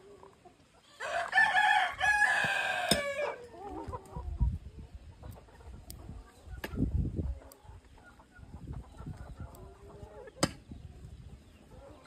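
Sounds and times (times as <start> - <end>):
rooster crowing: 1.0 - 3.4.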